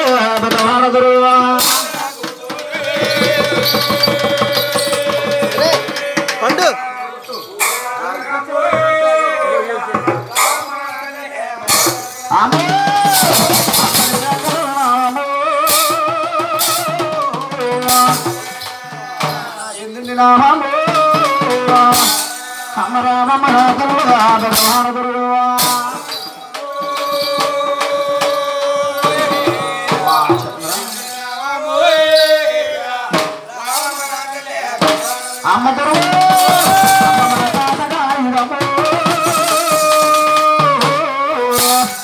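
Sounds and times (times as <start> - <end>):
drum strokes: 0.0 - 9.2, 9.9 - 42.0
man singing through loudspeaker: 0.0 - 42.0
rattles shaking: 1.6 - 8.4, 25.6 - 32.7, 33.4 - 38.1, 38.8 - 40.6.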